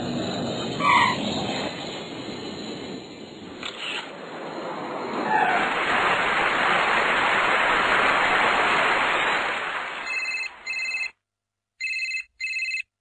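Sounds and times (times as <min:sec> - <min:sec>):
loud rushing hiss: 0:03.8 - 0:10.0
electronic telephone ringtone: 0:10.0 - 0:11.2, 0:11.8 - 0:12.9.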